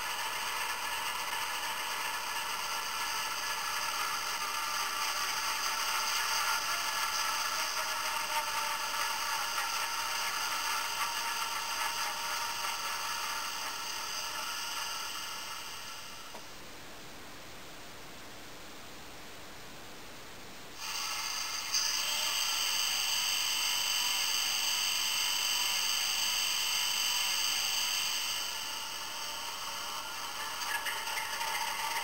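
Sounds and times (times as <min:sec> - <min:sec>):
faint hiss: 0:00.0 - 0:32.0.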